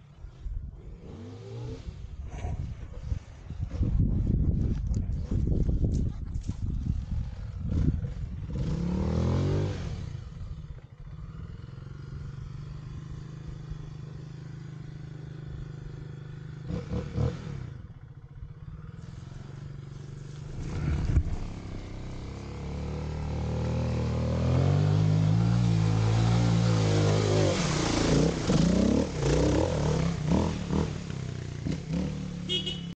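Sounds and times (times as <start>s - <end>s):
dirt bike engine revving: 7.2s - 14.0s, 14.6s - 17.9s, 18.7s - 33.0s.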